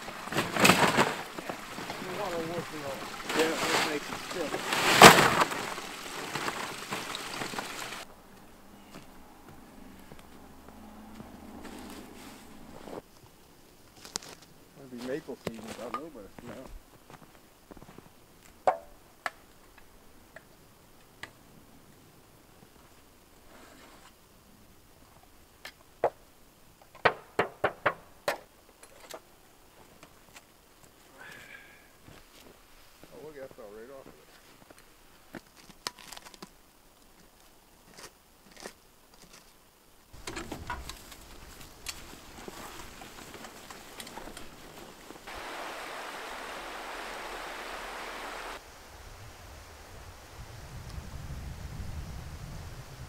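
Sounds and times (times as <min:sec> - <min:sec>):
metal buckets clanking: 0:00.0 - 0:08.0
footsteps crunching in snow: 0:00.0 - 0:18.2, 0:40.4 - 0:48.6.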